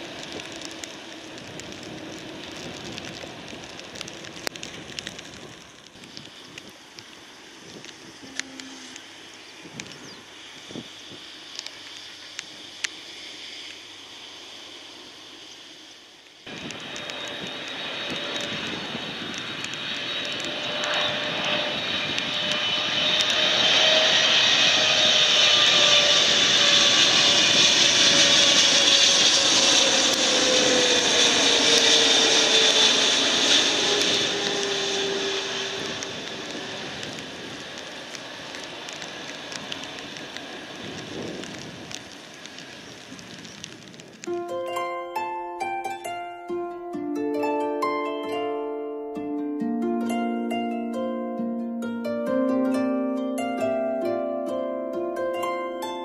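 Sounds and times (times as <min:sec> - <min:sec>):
faint rain: 0:00.0 - 0:21.1, 0:35.8 - 0:45.2
jet airliner flying low past: 0:00.0 - 0:44.3.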